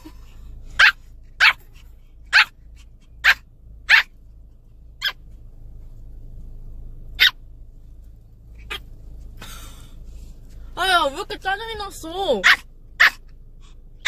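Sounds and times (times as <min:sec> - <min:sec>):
car cabin rumble: 0:00.0 - 0:14.0
puppy yapping: 0:00.8 - 0:01.7, 0:02.3 - 0:04.1, 0:07.2 - 0:07.4, 0:12.4 - 0:13.3.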